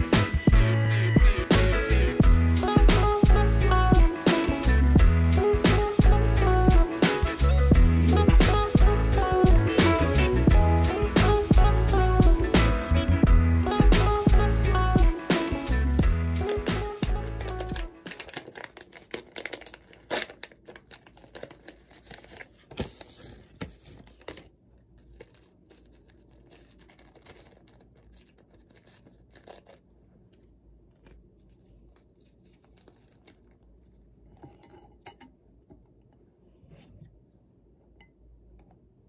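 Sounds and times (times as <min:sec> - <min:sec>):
foil packet tearing and crinkling: 0:16.4 - 0:34.0
paper rustling: 0:16.4 - 0:34.0.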